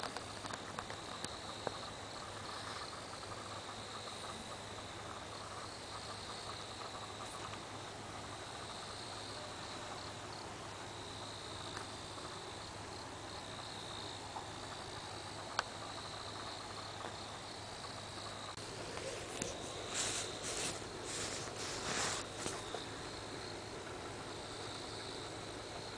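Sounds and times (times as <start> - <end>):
crickets trilling: 0.0 - 25.9
low steady hum: 0.0 - 25.9.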